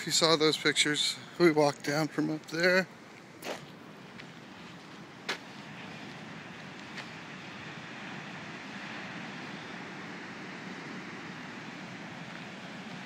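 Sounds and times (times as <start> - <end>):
heavy ocean surf breaking: 5.4 - 13.0.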